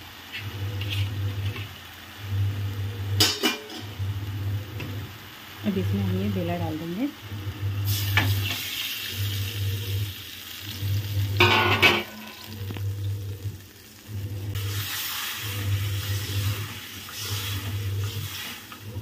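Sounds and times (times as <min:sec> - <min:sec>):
oil sizzling and spitting: 0:00.0 - 0:05.9, 0:06.8 - 0:19.0
spatula stirring in pan: 0:00.2 - 0:01.8, 0:14.5 - 0:19.0
water pouring into pan: 0:07.8 - 0:19.0.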